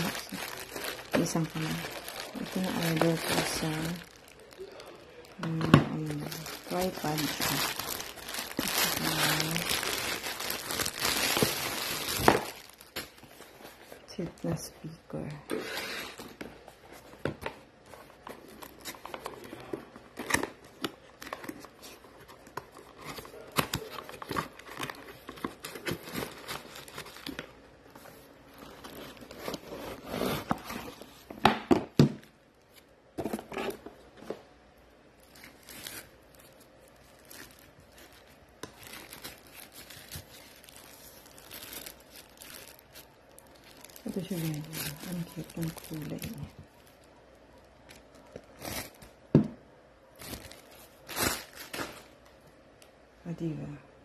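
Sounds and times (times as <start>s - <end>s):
plastic bag crinkling: 0.0s - 31.3s, 35.2s - 49.3s, 50.1s - 52.3s
cardboard box opening: 28.8s - 31.0s.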